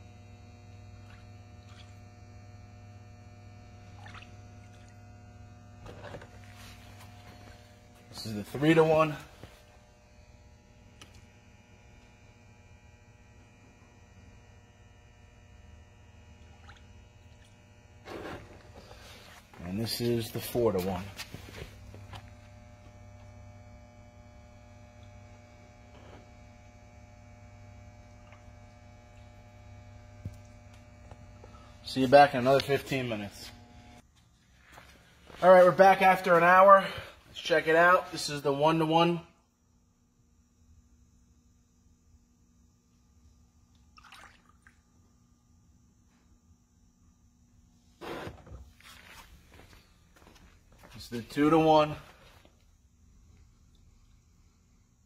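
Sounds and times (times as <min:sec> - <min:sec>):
electrical mains hum: 0:00.0 - 0:55.0
liquid sloshing in plastic tub: 0:03.8 - 0:05.0, 0:44.0 - 0:44.8.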